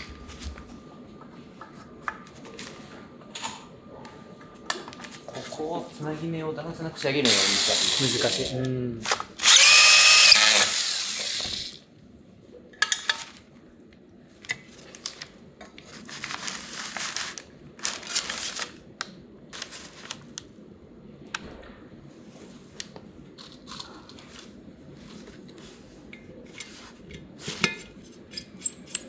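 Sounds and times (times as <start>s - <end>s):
power driver whirring: 7.2s - 8.5s, 9.1s - 11.8s
paper crinkling and rustling: 14.4s - 20.6s.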